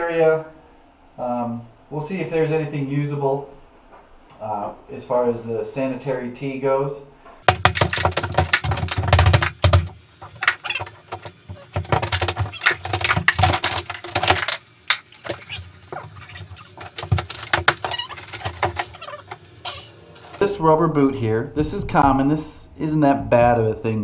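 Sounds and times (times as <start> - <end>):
plaster chunks cracking and falling: 7.4 - 20.4
hammer knocking into drywall: 7.5 - 10.6.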